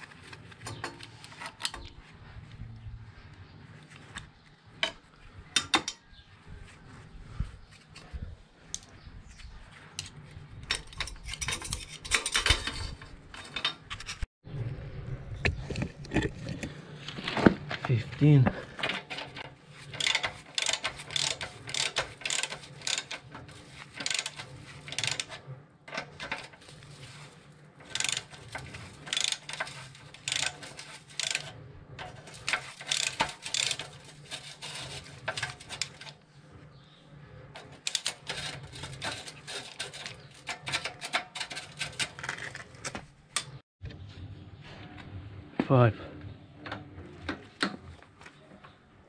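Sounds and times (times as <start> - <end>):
ratchet wrench clicking: 19.9 - 23.2, 23.9 - 25.4, 27.8 - 31.5, 32.3 - 36.1.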